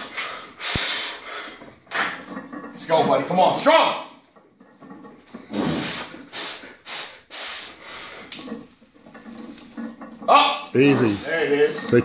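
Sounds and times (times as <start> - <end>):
sharp heavy breaths: 0.0 - 1.7, 5.5 - 8.4.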